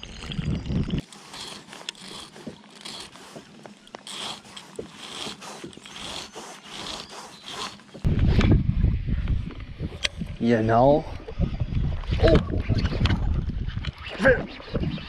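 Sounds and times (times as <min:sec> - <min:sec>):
file rasping on hook: 0:01.0 - 0:08.1.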